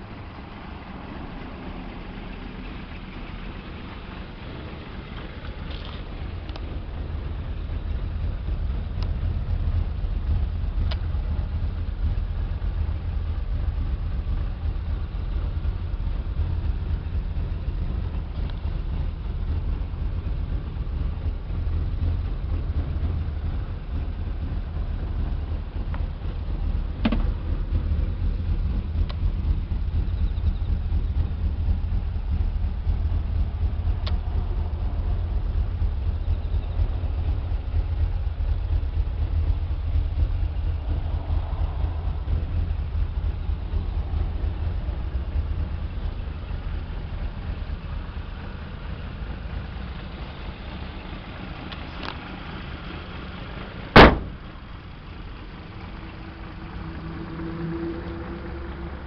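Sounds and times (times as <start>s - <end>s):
truck engine idling: 0.0s - 59.0s
loud knock: 27.0s - 27.3s, 54.0s - 54.4s.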